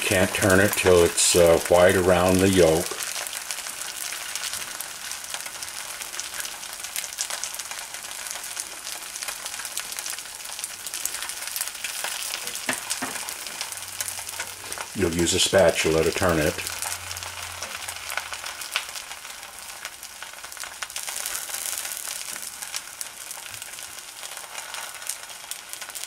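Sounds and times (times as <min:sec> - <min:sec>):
egg sizzling in a pan: 0:00.0 - 0:26.0.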